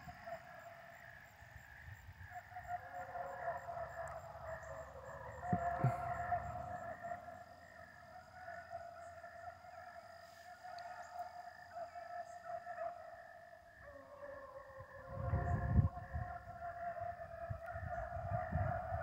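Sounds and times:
hounds baying: 2.3 - 13.2.

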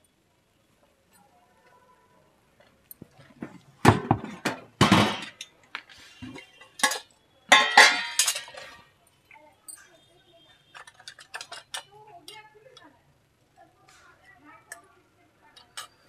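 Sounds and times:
metal utensils clanking: 4.3 - 8.8, 10.7 - 12.0, 15.6 - 16.0.

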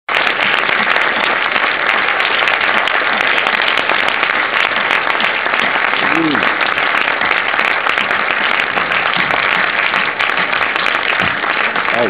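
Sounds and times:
audience clapping: 0.1 - 12.0
faint voices: 6.0 - 6.6.

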